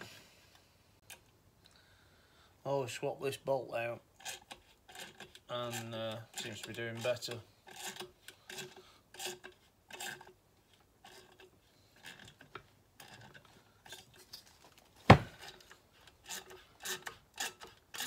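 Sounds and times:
metal tool scraping on bolt: 4.2 - 14.3, 15.4 - 18.0.

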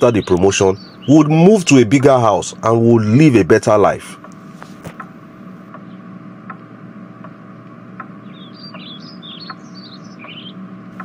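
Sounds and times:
steady low hum: 0.0 - 11.0
faint ticks: 4.2 - 10.4
quick high bird chirps: 8.2 - 10.6.

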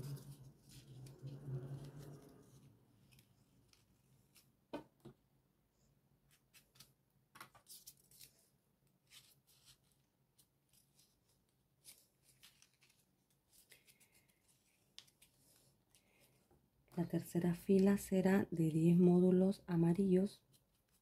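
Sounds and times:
paper rustling and clicking: 9.1 - 16.4.

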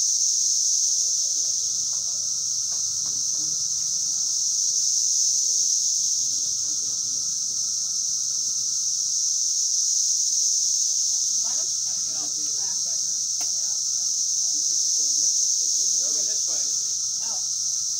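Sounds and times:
cicadas chorus drone: 0.0 - 17.9.

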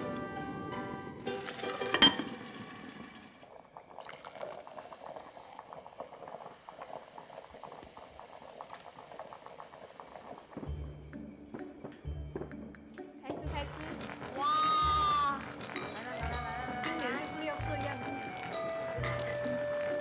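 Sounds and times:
fizzy drink pouring into glass: 1.2 - 11.0
ceramic lid clinking on pot: 1.7 - 2.4.

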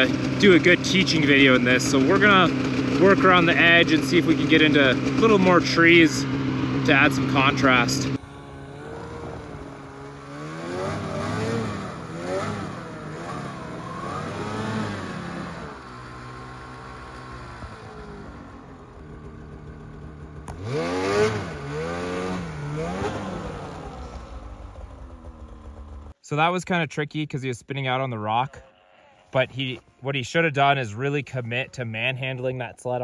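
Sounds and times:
snowmobile engine revving: 0.0 - 26.2.

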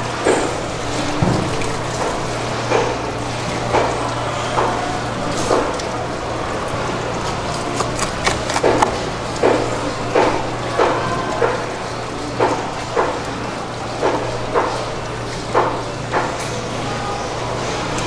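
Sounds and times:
knife cutting fish on plastic board: 7.2 - 9.6.

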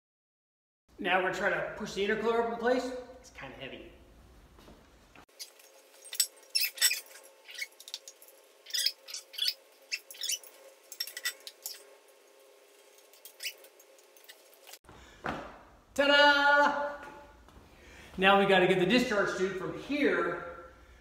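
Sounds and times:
metal parts clinking and rattling: 5.4 - 9.5, 10.1 - 11.8.

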